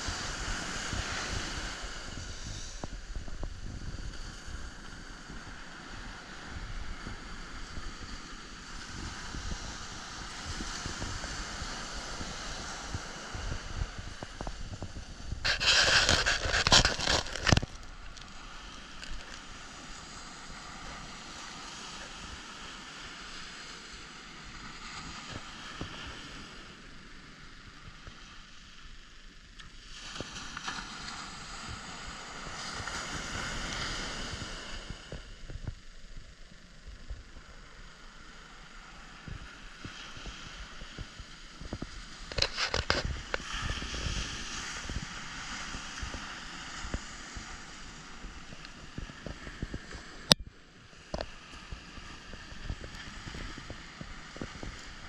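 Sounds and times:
surf washing up beach: 0.0s - 55.0s
camera handling rustling: 15.4s - 18.2s, 42.3s - 43.1s.

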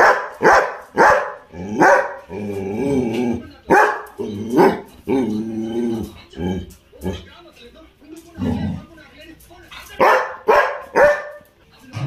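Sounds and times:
dog barking: 0.0s - 2.3s, 3.7s - 4.9s, 10.0s - 11.5s
dog moaning: 1.5s - 3.5s, 4.1s - 7.3s, 8.4s - 8.9s.

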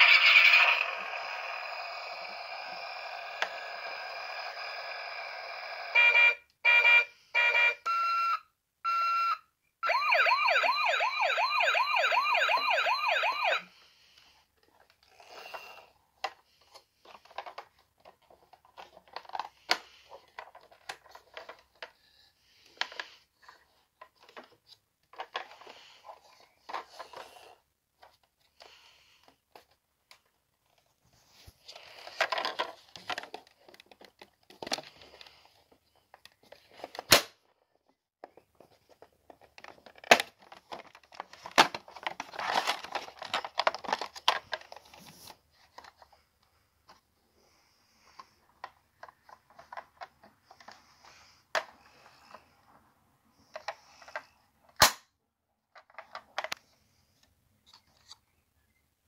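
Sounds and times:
plastic toy handling noises: 0.0s - 5.8s, 12.2s - 58.7s
toy siren warbling: 0.0s - 13.7s.

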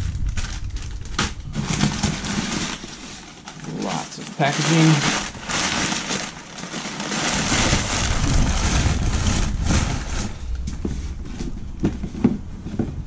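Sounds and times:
deep rumble: 0.0s - 3.8s, 5.0s - 13.0s
paper crinkling and rustling: 0.0s - 10.7s.

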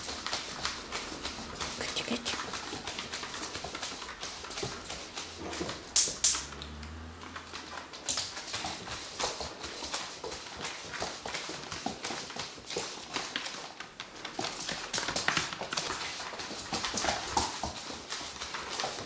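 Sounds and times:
dog claws clicking on wood: 0.0s - 19.0s.

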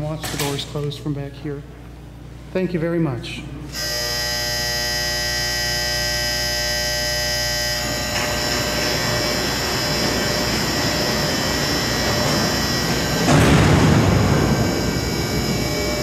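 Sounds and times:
elevator doors electric buzz: 3.7s - 16.0s
elevator gate mechanical rumble: 7.8s - 16.0s.

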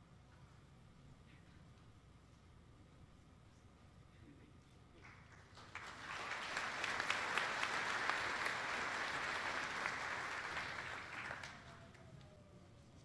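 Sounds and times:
audience applauding: 5.3s - 12.3s.

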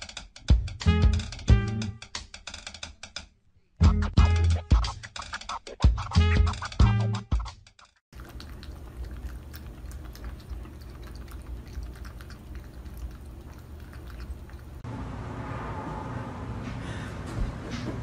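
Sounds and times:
low steady hum: 8.2s - 17.9s.

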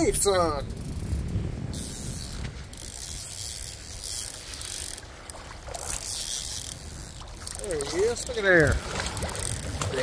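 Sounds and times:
fishing reel ratcheting whir: 0.2s - 10.0s.

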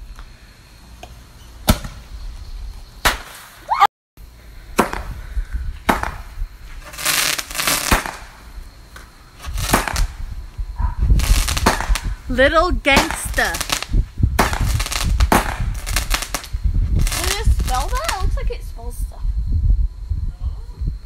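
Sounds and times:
fireworks banging: 3.0s - 3.6s, 4.7s - 18.6s
fireworks fizzing hiss: 3.0s - 3.7s, 4.3s - 19.2s.

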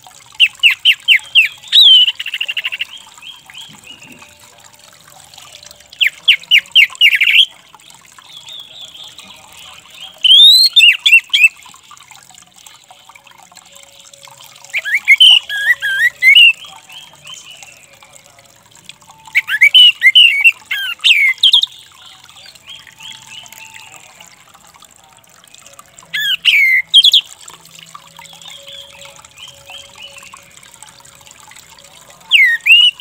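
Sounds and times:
thrush calling in rapid sharp notes: 19.3s - 21.7s.

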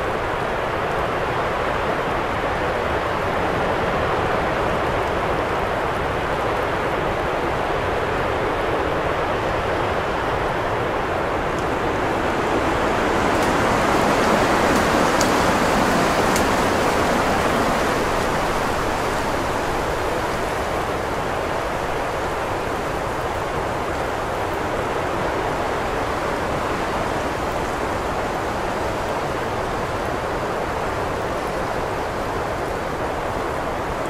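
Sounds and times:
wind blowing: 7.8s - 30.3s.

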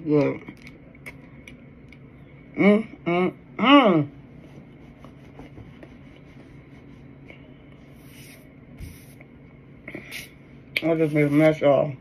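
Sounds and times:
soft rub: 4.1s - 9.2s, 10.9s - 11.6s.

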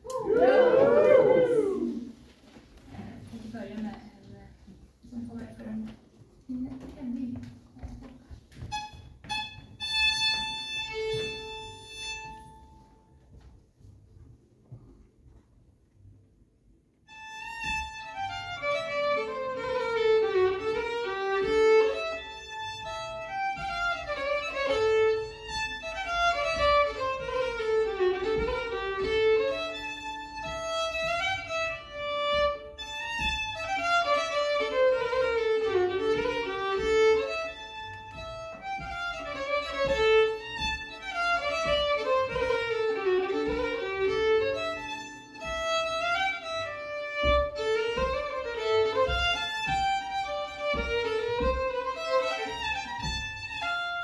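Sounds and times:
fiddle playing folk dance tune: 8.6s - 13.0s, 17.1s - 54.0s.

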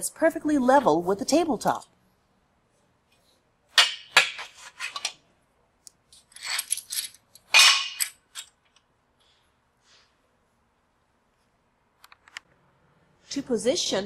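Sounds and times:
metallic clanks and clinks: 6.2s - 8.6s.

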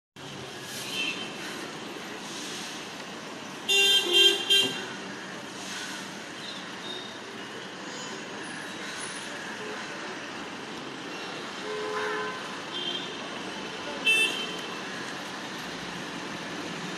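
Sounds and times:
distant traffic hum: 0.2s - 16.9s
vehicle horn honking: 3.7s - 4.9s.

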